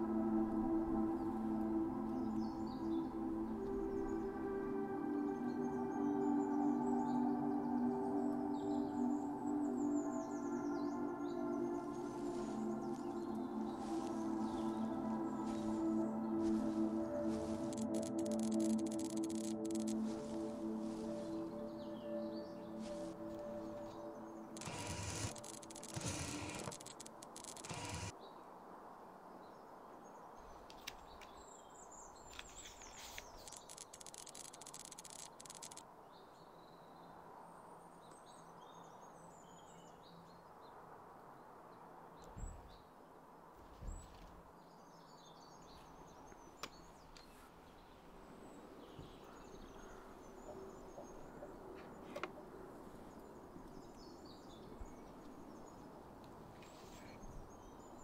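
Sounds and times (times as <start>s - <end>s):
small birds chirping: 5.4s - 28.1s.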